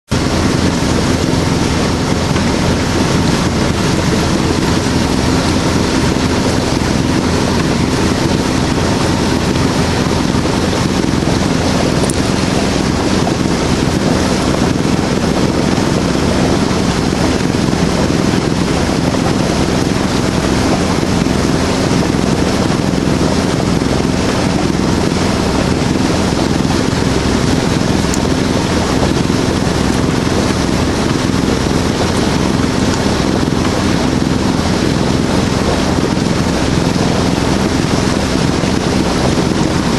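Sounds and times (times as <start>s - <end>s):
boat engine droning: 0.0s - 39.9s
wind noise on microphone: 0.1s - 39.9s.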